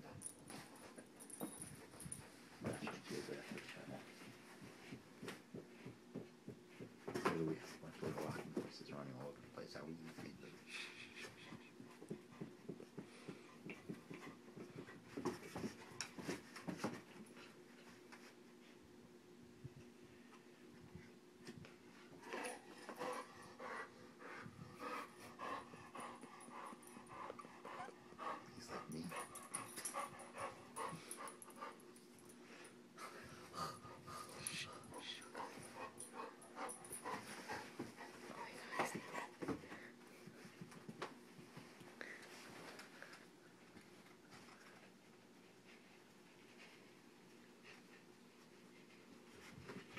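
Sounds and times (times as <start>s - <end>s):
puppy panting: 22.2s - 31.9s, 32.6s - 40.8s.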